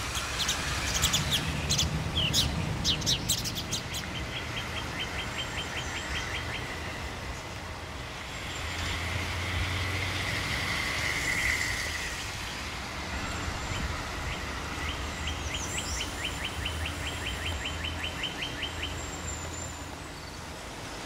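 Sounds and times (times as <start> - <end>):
outdoor noise: 0.0 - 21.0
bird chirping rapidly: 0.1 - 6.8
model train humming: 4.2 - 17.9.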